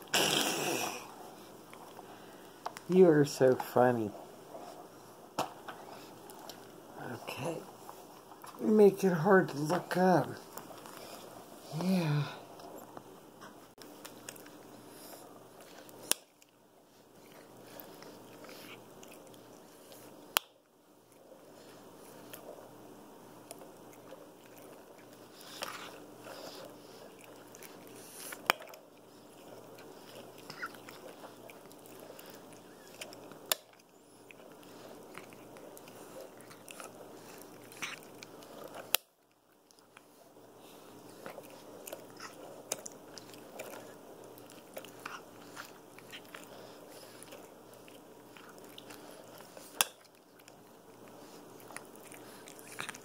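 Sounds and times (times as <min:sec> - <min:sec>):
monkey chewing and crunching: 0:13.8 - 0:20.4, 0:21.0 - 0:53.0.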